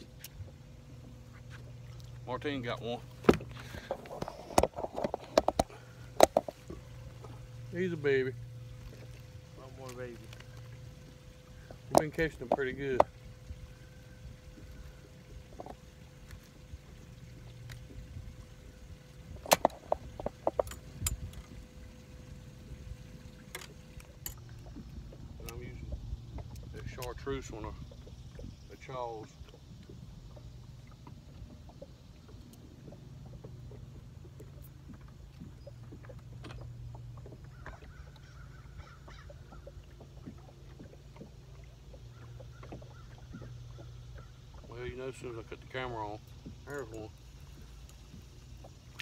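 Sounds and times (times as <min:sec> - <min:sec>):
faint steady hum: 0:00.0 - 0:49.0
water knocking against metal boat: 0:00.0 - 0:49.0
sharp clicks and light knocks: 0:11.9 - 0:13.1.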